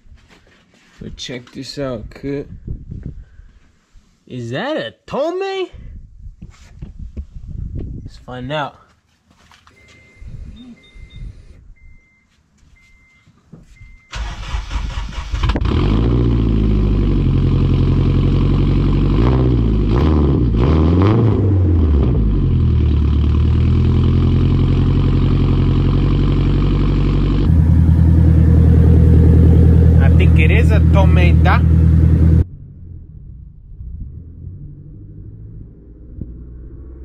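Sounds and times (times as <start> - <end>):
electronic beeps: 9.8 - 13.2
car engine starting and idling: 13.9 - 20.6, 21.4 - 36.4
engine revving: 14.2 - 33.4, 34.0 - 37.0.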